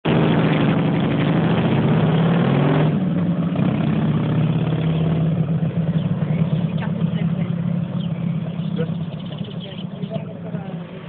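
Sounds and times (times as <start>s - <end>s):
motorcycle engine pulling away: 0.1s - 11.0s.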